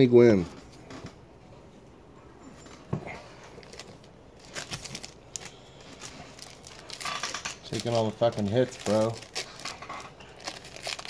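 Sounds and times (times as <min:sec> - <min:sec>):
cards rustling: 0:03.2 - 0:11.0.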